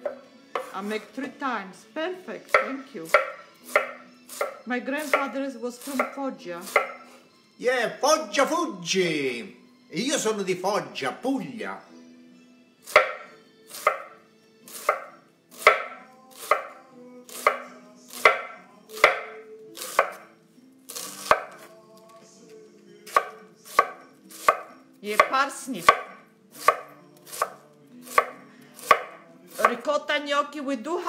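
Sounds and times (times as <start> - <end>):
knife chopping cabbage on board: 0.0 - 0.8, 2.5 - 7.1, 12.8 - 21.7, 23.0 - 29.8.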